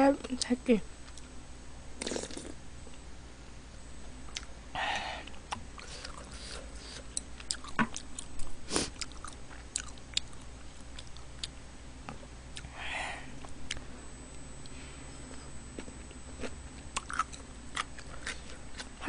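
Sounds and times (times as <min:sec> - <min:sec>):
chewing and mouth sounds: 0:04.3 - 0:04.5, 0:05.2 - 0:11.6, 0:15.8 - 0:19.0.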